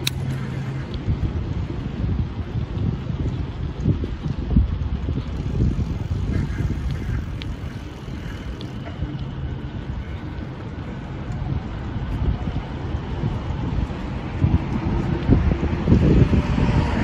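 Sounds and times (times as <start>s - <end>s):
road traffic hum: 0.0s - 17.0s
wind buffeting microphone: 0.0s - 17.0s
faint ticks: 5.2s - 10.5s.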